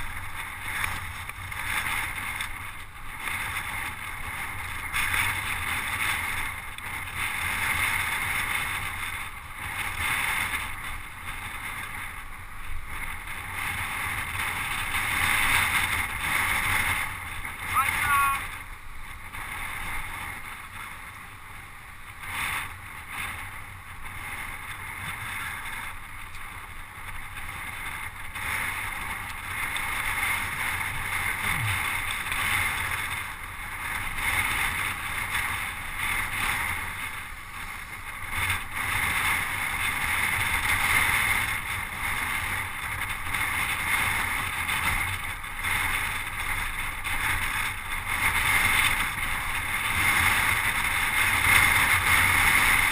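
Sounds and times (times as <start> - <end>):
bike road noise: 0.0 - 52.9.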